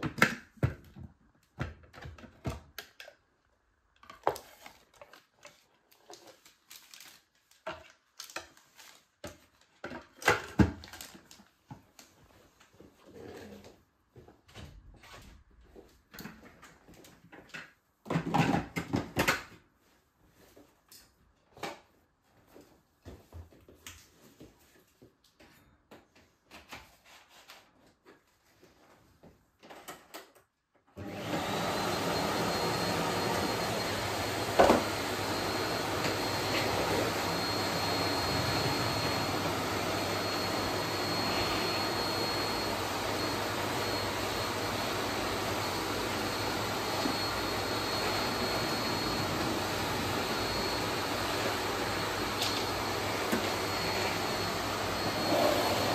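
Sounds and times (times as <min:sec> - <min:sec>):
vacuum cleaner running with whine: 0:31.0 - 0:55.9.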